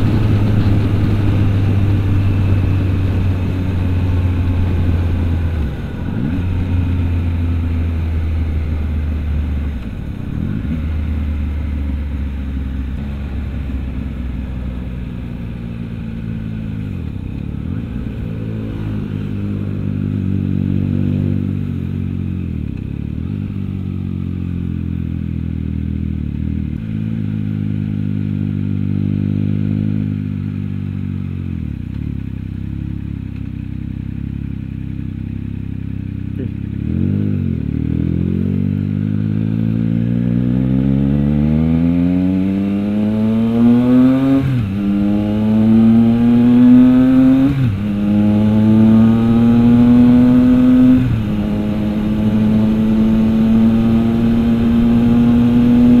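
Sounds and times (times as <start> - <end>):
motorcycle engine at road speed: 0.0 - 56.0.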